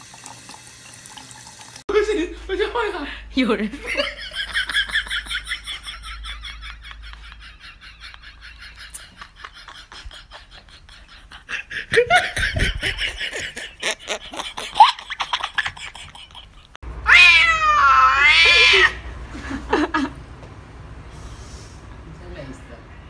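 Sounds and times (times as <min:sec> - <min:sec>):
person laughing: 0:03.8 - 0:16.8
cat yowling: 0:17.0 - 0:19.0.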